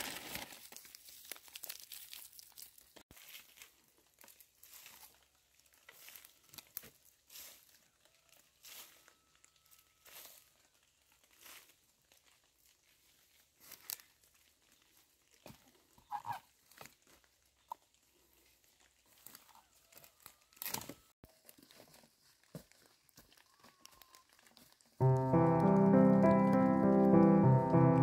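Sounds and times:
light rustling and crinkling: 0:00.0 - 0:25.0
background piano music: 0:25.0 - 0:28.0.

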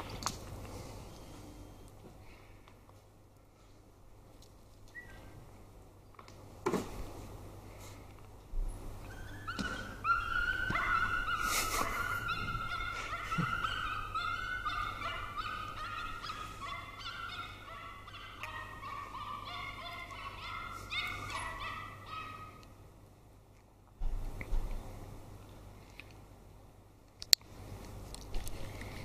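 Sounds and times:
dog whining: 0:09.0 - 0:22.1.

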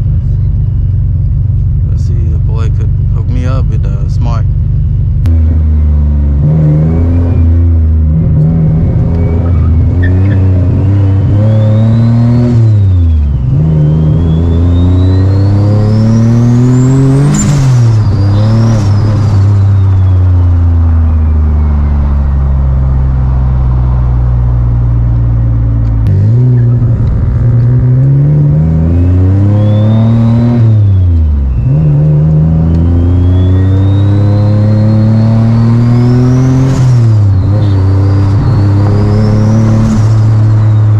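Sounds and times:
car engine revving through gears: 0:05.2 - 0:40.9
turbo whistle: 0:08.7 - 0:22.2, 0:29.0 - 0:40.9.

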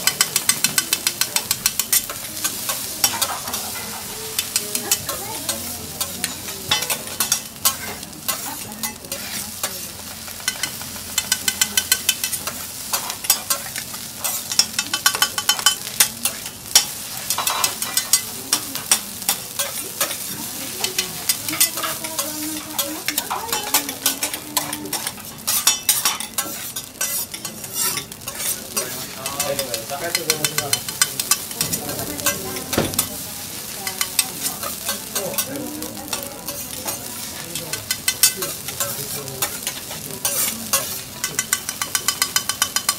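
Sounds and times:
metal spatulas chopping and scraping: 0:00.0 - 0:09.8, 0:18.8 - 0:35.5, 0:36.1 - 0:42.9
rice sizzling on a griddle: 0:00.0 - 0:42.9.

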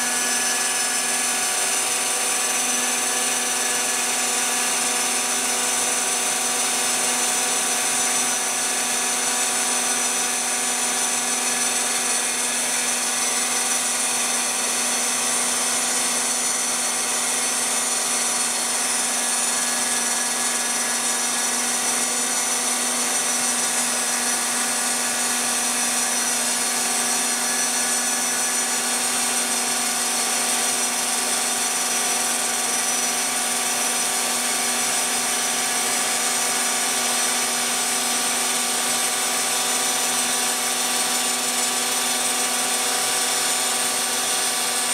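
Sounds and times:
machine spindle whining: 0:00.0 - 0:44.9
mill cutting fibreglass: 0:00.0 - 0:44.9.

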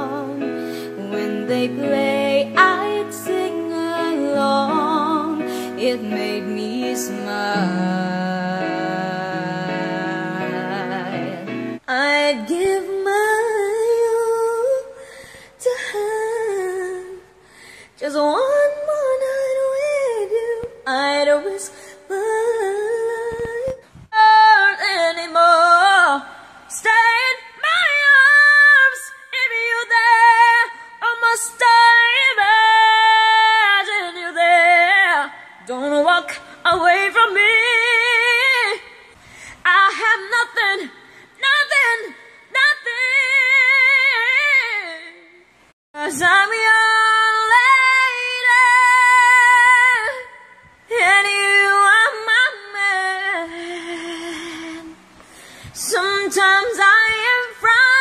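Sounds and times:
woman singing unaccompanied: 0:00.0 - 0:17.4, 0:18.0 - 0:45.4, 0:46.0 - 0:55.0, 0:55.7 - 0:58.0.

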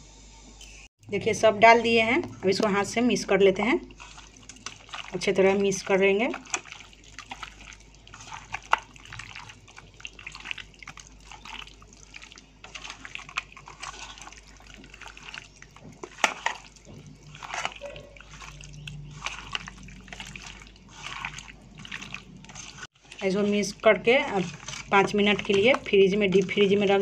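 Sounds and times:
wet squelching of meat: 0:02.2 - 0:27.0.

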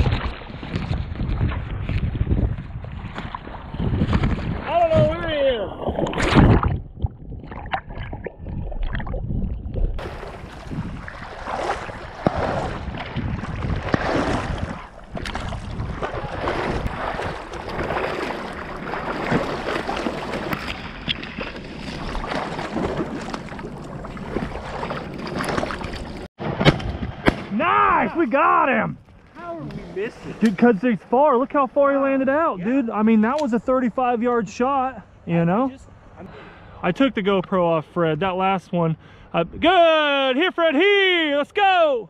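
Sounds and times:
water splashing and sloshing: 0:00.0 - 0:32.2.

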